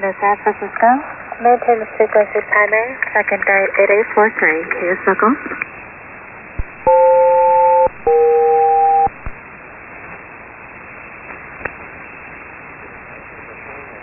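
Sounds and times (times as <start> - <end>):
paired steady radio tones: 6.6 - 9.4.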